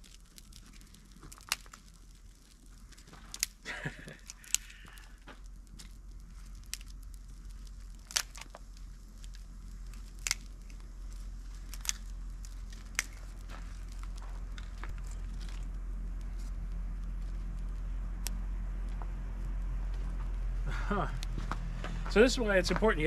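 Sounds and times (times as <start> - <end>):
campfire crackling: 0.0 - 23.0
fire popping: 0.0 - 23.0
low rumble: 0.0 - 23.0.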